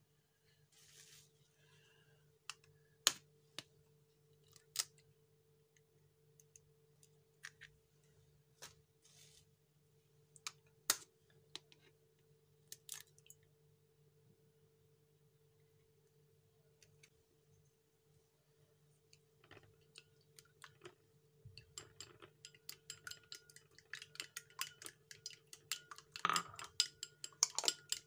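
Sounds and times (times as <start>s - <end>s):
faint steady hum: 0.0s - 28.0s
eggs cracking on glass bowl: 21.6s - 28.0s.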